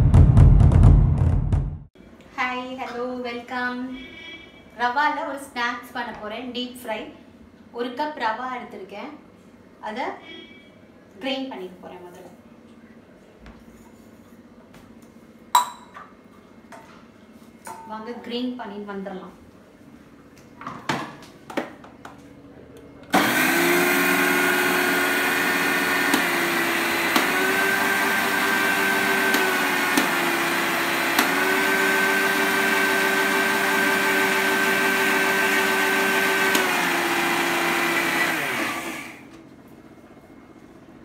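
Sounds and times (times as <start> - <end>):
mixer grinder motor grinding: 23.1 - 39.3.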